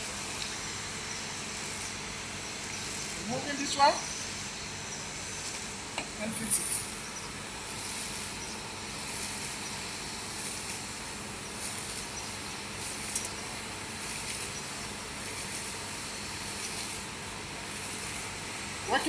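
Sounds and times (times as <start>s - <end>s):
background hiss and hum: 0.0s - 19.0s.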